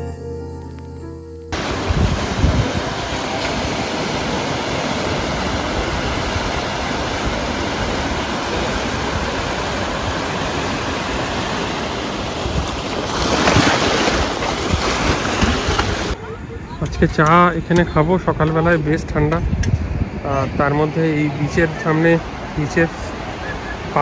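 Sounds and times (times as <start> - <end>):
sea waves washing over rocks: 1.6 - 16.2.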